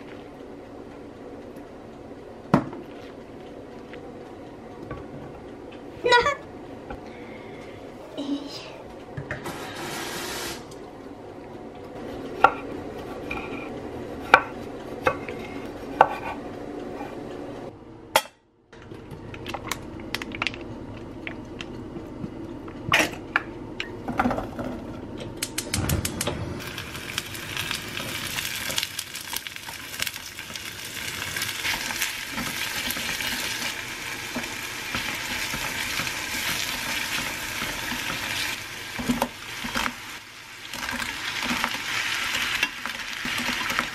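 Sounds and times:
frying sizzle: 9.5 - 10.6, 26.6 - 43.9
vegetables dropping into hot oil: 26.7 - 40.0.

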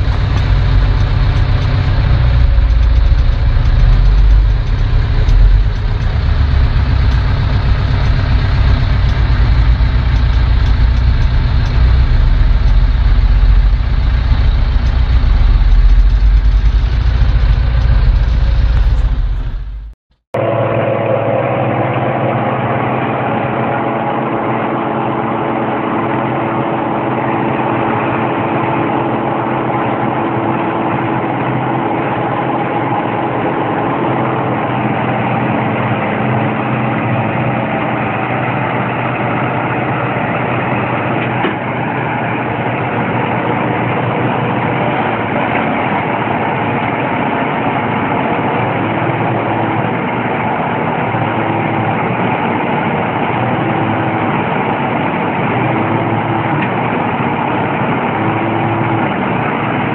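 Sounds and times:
tractor diesel engines running: 0.0 - 59.9.

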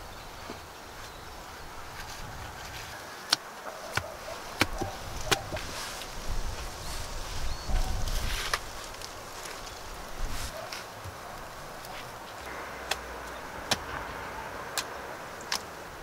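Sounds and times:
wood scraping and shuffling: 1.9 - 12.5
wooden logs knocking: 3.3 - 5.7.

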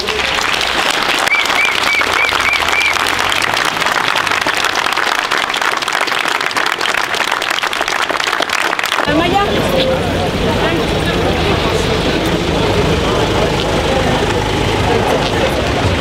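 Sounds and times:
crowd applauding: 0.0 - 9.8.

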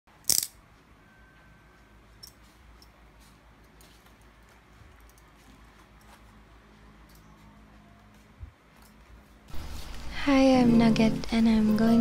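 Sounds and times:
utility knife cutting tape and plastic: 0.3 - 0.5.

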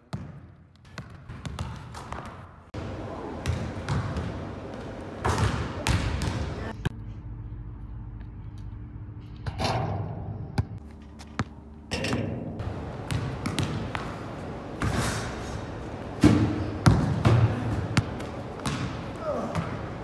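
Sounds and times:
basketball bouncing on wooden floor: 0.1 - 2.4, 12.6 - 14.1, 16.2 - 19.8.

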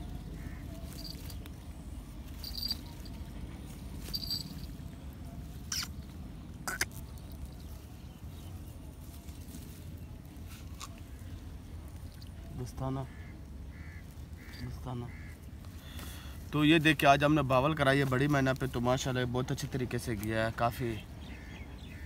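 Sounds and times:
rustling in grass: 0.0 - 22.0
short high squeaks: 5.7 - 6.0.

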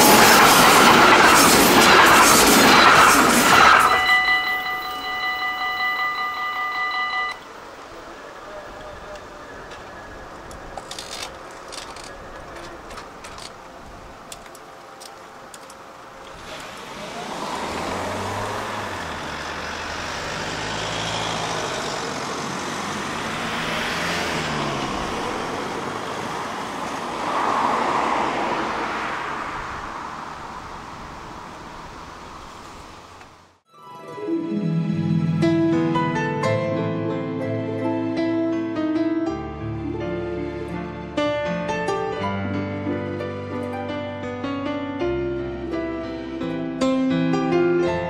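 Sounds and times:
cars passing: 0.0 - 33.6.

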